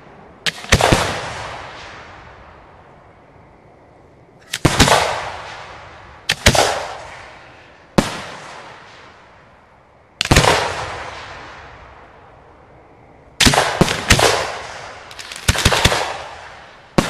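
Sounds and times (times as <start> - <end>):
fireworks bangs with rolling echo: 0.0 - 2.8, 4.5 - 9.6, 10.2 - 12.3, 13.4 - 17.0.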